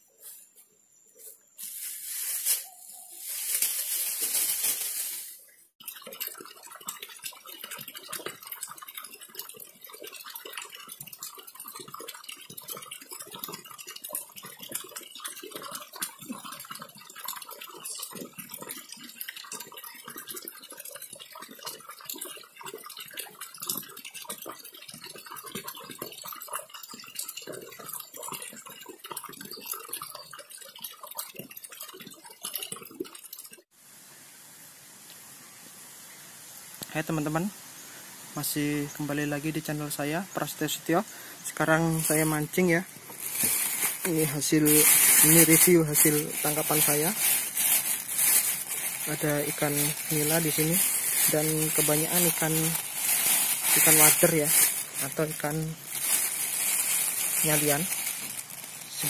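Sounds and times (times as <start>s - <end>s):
stream trickling and babbling: 5.7s - 59.0s.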